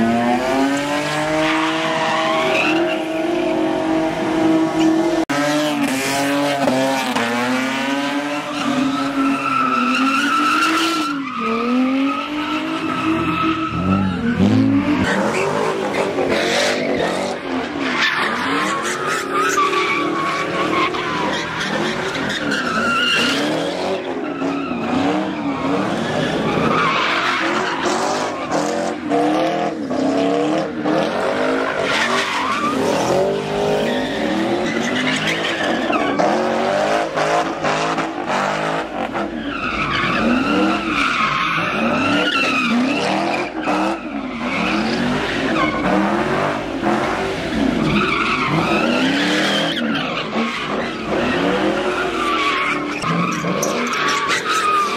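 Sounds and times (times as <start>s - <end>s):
car engines revving: 0.0s - 54.9s.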